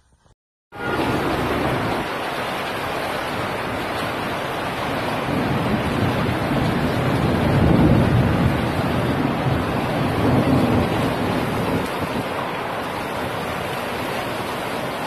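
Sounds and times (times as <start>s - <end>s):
heavy rain rushing: 0.7s - 15.0s
thunder rumble: 0.8s - 15.0s
wind buffeting microphone: 3.1s - 15.0s.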